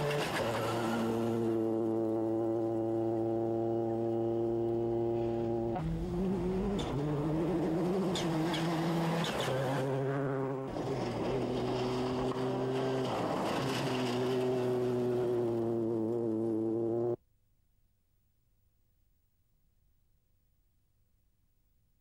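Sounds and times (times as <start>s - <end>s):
rally car engine at high revs: 0.0s - 17.2s.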